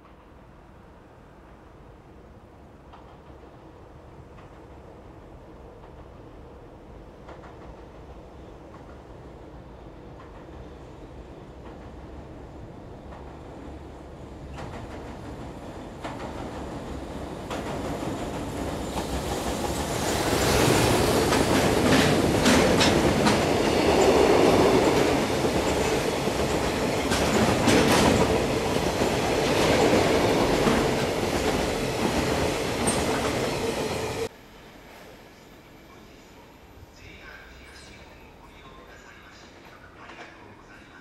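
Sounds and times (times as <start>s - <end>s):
train wheels rumbling on bridge: 11.5s - 34.3s
wheels clacking over rail joints: 20.8s - 33.7s.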